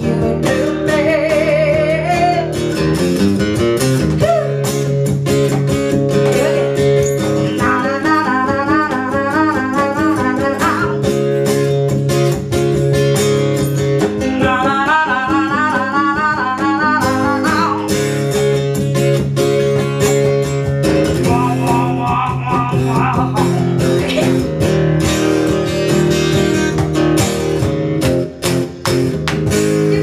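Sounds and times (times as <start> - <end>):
woman singing with vibrato: 0.0 - 2.6, 6.2 - 11.1, 14.2 - 17.9, 21.2 - 24.4
strummed acoustic guitar: 0.0 - 30.0
hand-slapped cajon beats: 2.8 - 7.8, 17.1 - 30.0.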